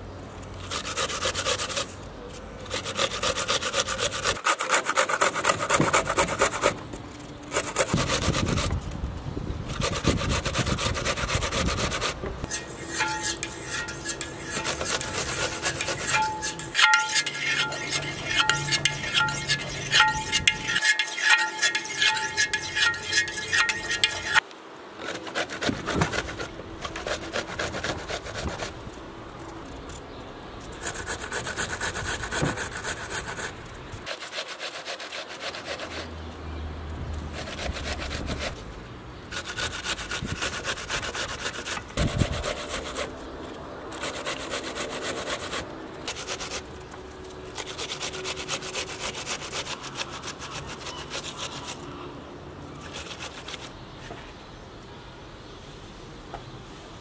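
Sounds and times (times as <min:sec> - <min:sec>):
food scraping on hand grater: 0:02.7 - 0:06.8, 0:07.5 - 0:08.9, 0:09.7 - 0:24.4, 0:39.3 - 0:43.1, 0:47.5 - 0:51.8.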